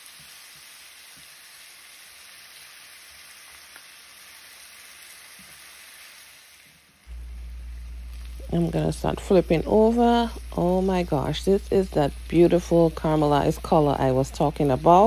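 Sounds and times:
meat sizzling in oil: 0:00.0 - 0:15.0.

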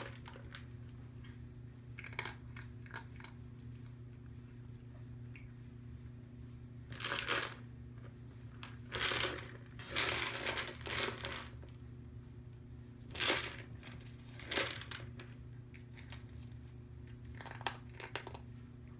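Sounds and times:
kibble rattling in plastic cup: 0:06.9 - 0:07.6, 0:08.6 - 0:11.6, 0:13.1 - 0:16.5.

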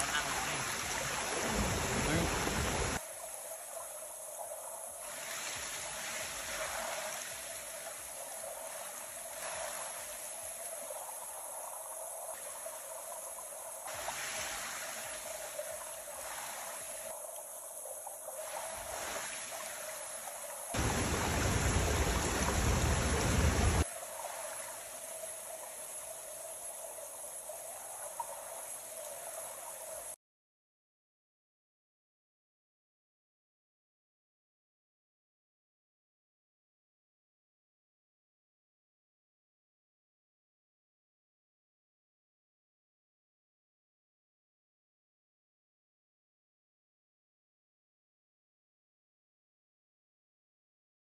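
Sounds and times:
waterfall stream rushing: 0:00.0 - 0:03.0, 0:20.7 - 0:23.8.

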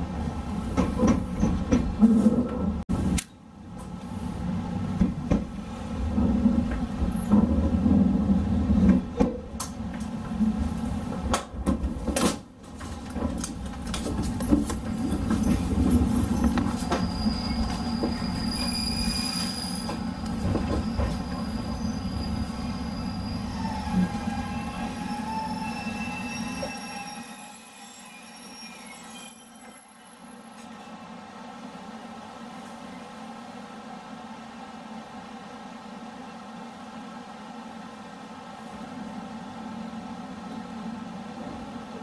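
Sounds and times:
train rumbling: 0:00.0 - 0:27.4
high wheel squeal: 0:16.4 - 0:20.0, 0:20.7 - 0:31.2.

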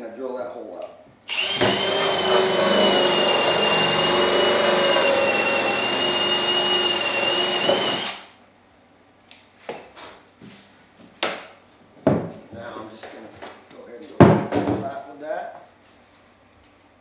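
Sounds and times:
drill cutting through plastic: 0:01.3 - 0:08.3.

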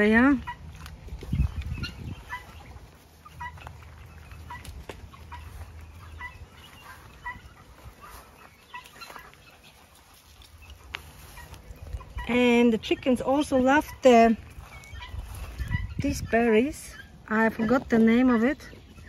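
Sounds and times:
chickens clucking: 0:00.0 - 0:19.0
microphone rumble: 0:00.7 - 0:02.6.

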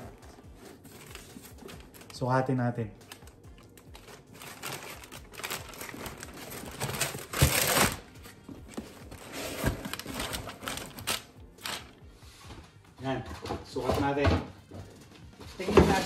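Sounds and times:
tissue paper crinkling: 0:00.0 - 0:02.4, 0:03.0 - 0:11.9.

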